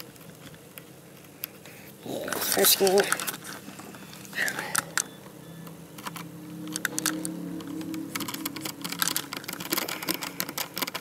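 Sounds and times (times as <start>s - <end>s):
plastic parts clicking: 4.4s - 11.0s.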